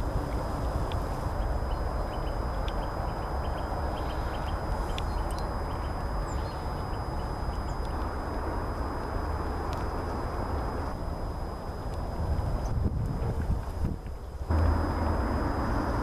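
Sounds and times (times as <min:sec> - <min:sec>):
faint ticks: 0:00.0 - 0:08.1
low rumble: 0:00.0 - 0:16.0.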